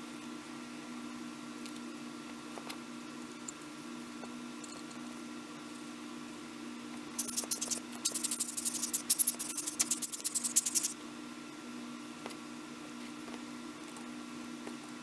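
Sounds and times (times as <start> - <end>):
steady low hum: 0.0 - 15.0
scratchy rubbing on camera parts: 7.2 - 11.0.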